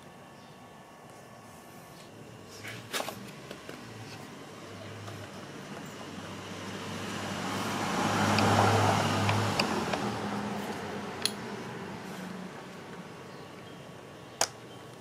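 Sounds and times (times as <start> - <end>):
vehicle passing by: 4.9 - 13.2.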